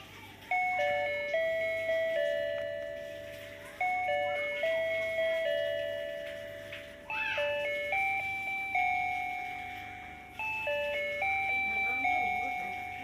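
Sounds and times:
simple electronic tune: 0:00.5 - 0:13.0.

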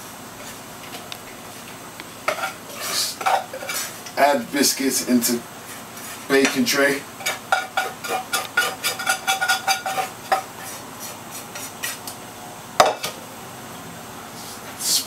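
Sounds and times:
utensil scraping metal pan: 0:07.2 - 0:12.0.

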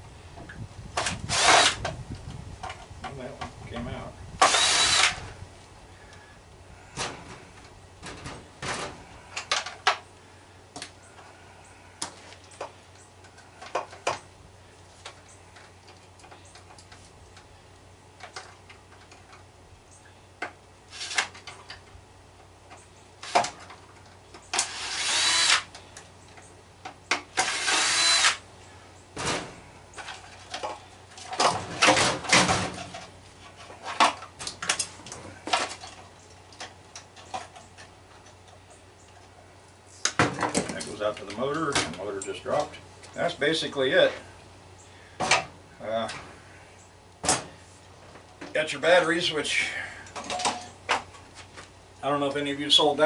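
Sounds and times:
cordless drill whining: 0:01.3 - 0:01.8, 0:04.4 - 0:05.3, 0:24.5 - 0:25.7, 0:27.4 - 0:28.4.

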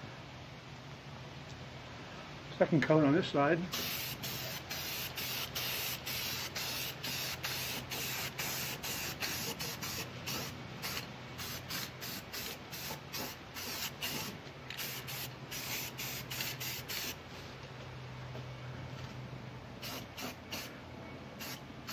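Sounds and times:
spray paint can hissing: 0:03.7 - 0:17.2, 0:19.8 - 0:20.7, 0:21.4 - 0:21.9.

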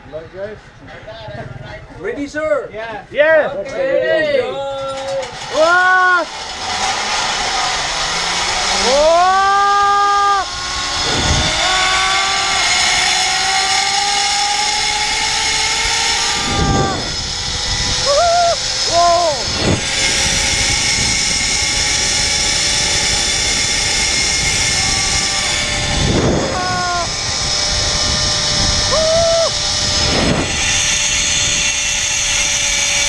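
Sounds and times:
zipline pulleys whining: 0:03.0 - 0:33.0
wind rushing on microphone: 0:09.8 - 0:13.6, 0:14.6 - 0:32.8.

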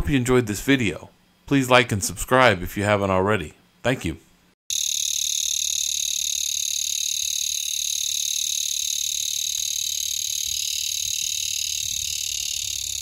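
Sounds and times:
cicada buzzing: 0:04.7 - 0:13.0.

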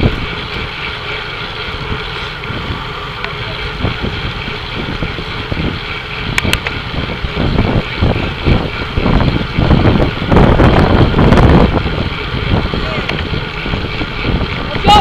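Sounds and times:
road and tyre noise: 0:00.0 - 0:15.0
wind buffeting microphone: 0:00.0 - 0:15.0
sharp clicks: 0:06.3 - 0:06.8.

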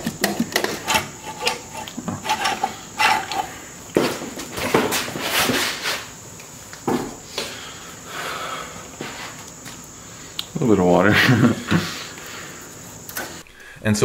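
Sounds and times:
metal clunks and scrapes: 0:00.0 - 0:06.0.

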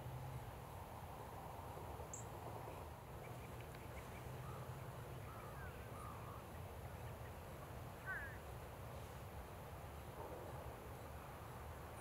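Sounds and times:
low rumble and hiss: 0:00.0 - 0:12.0
distant bird calls: 0:02.1 - 0:08.5.

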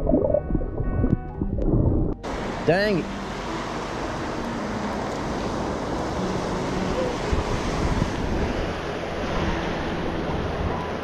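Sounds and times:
wind buffeting microphone: 0:00.0 - 0:02.6, 0:05.2 - 0:11.0
surf washing onto beach: 0:02.2 - 0:11.0.

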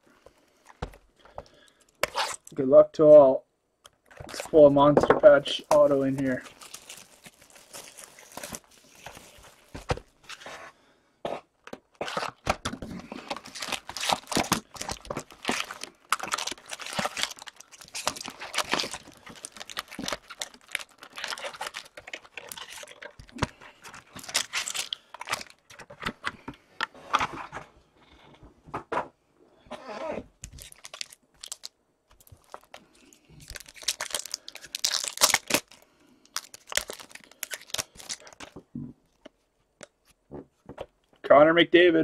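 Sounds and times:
packaging crinkling and tearing: 0:05.3 - 0:10.6, 0:11.7 - 0:26.4, 0:30.4 - 0:38.6.

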